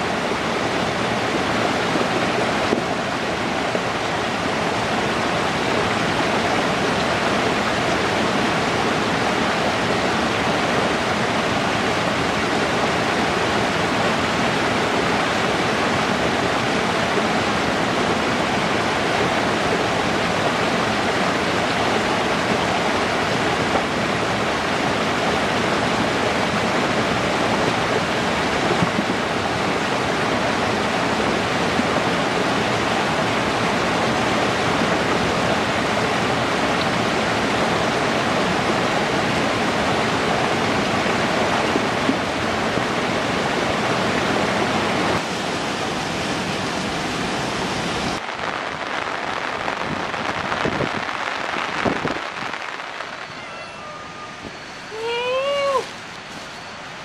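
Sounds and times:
fast-flowing water rushing: 0.0 - 57.0.

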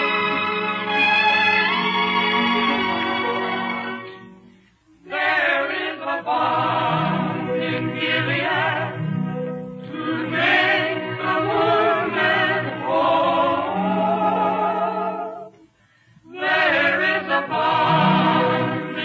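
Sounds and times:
male vocal group singing harmony: 5.1 - 9.1, 9.9 - 15.6, 16.3 - 19.0.

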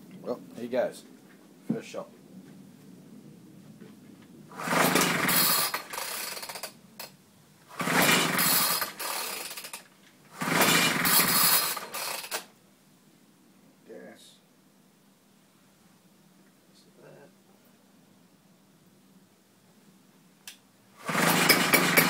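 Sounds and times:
blower motor starting and dying: 4.5 - 6.8, 7.7 - 12.5, 21.0 - 22.0.

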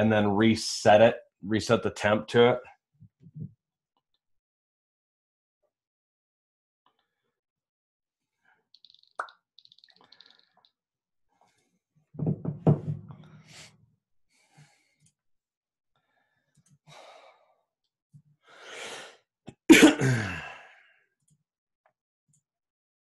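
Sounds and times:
man sighing loudly: 20.0 - 20.8.

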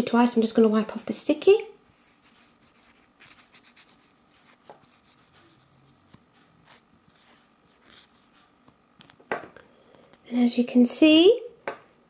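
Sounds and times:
wipe rubbing on nail: 1.9 - 8.4.

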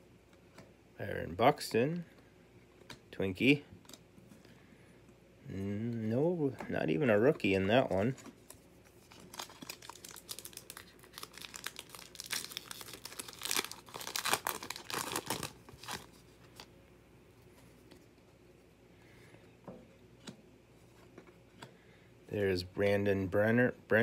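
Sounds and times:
card pack wrapper tearing: 9.1 - 16.2.

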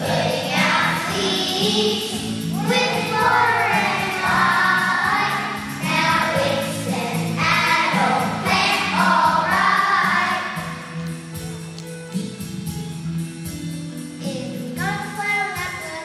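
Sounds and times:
young children singing: 0.0 - 10.9.

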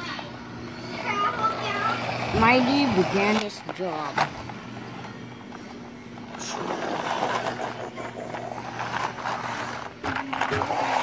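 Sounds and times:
steady low hum: 0.0 - 11.0
toy truck wheels rolling on tiles: 1.0 - 4.3, 5.6 - 11.0.

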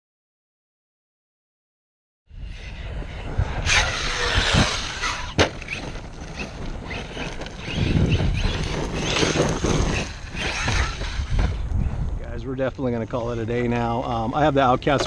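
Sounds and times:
electric motor whine: 2.4 - 11.8
tyres on gravel: 2.9 - 15.0.

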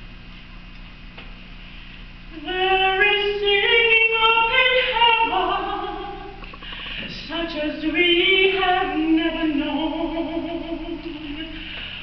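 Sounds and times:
faint low hum: 0.0 - 12.0
woman singing soprano: 2.3 - 6.5, 7.1 - 11.8.

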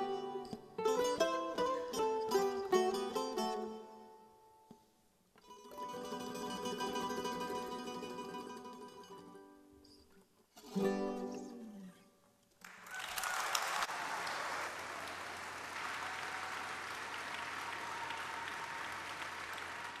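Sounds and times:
audience applause: 12.6 - 20.0.

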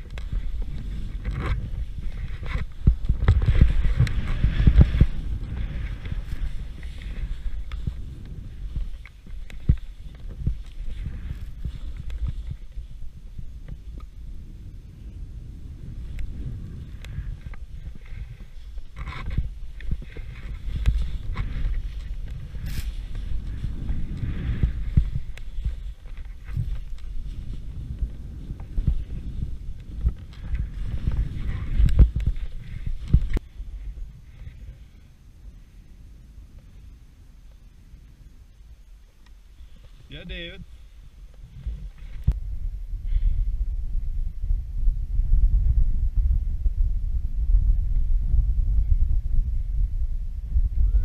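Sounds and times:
skis thumping on bumps: 0.0 - 14.2, 16.0 - 33.5
wind on microphone: 0.0 - 51.0
skis hissing through powder snow: 0.2 - 13.2, 15.7 - 35.8.

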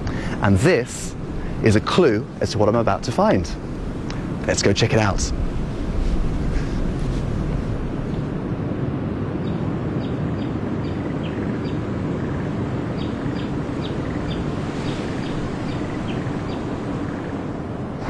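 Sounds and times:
low outdoor rumble: 0.0 - 18.0
small bird chirping: 9.4 - 17.7.

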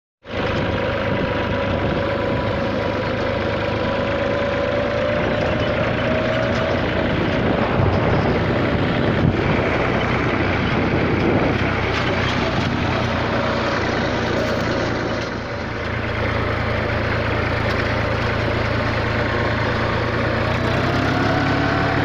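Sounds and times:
tractor diesel engine running: 0.2 - 22.0.

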